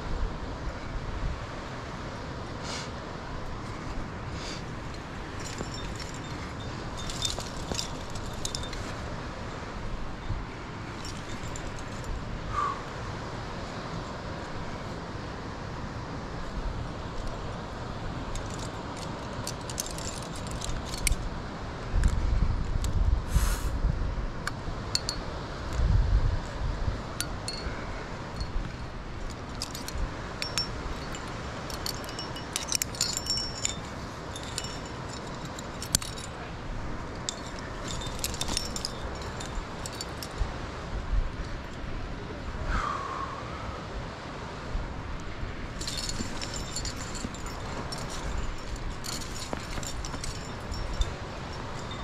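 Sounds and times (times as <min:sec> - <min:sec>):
climbing gear clinking: 0:03.6 - 0:09.5, 0:10.1 - 0:12.4, 0:17.1 - 0:21.4, 0:24.9 - 0:25.3, 0:27.1 - 0:41.9, 0:45.2 - 0:52.0.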